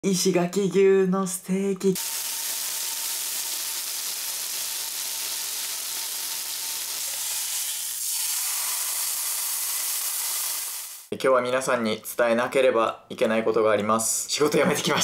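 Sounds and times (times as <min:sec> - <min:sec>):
steak sizzling: 0:02.0 - 0:11.1.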